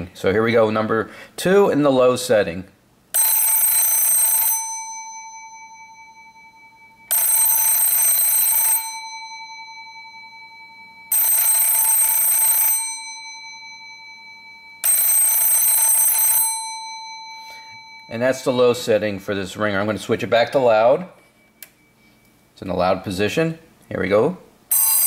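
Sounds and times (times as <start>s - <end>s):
telephone ringer gong ringing: 3.2s - 19.0s, 24.7s - 25.0s.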